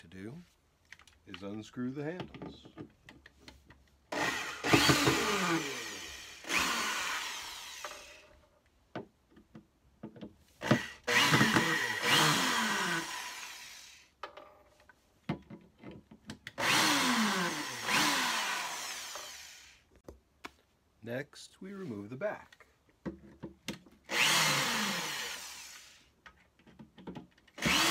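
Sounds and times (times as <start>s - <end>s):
electric drill driver running: 4.1s - 8.3s, 10.6s - 14.1s, 16.6s - 19.9s, 24.1s - 26.1s, 27.5s - 27.9s.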